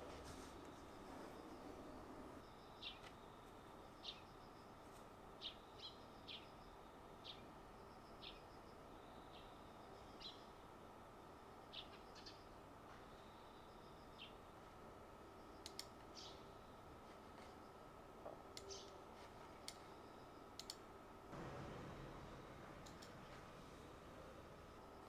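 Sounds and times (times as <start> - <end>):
bird chirping faintly: 0.7 - 4.8.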